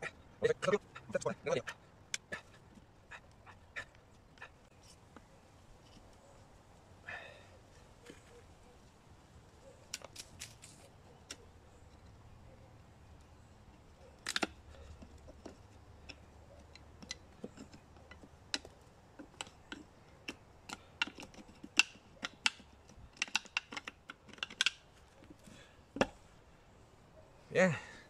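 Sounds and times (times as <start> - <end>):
wood cracking and snapping: 13.2 - 25.4.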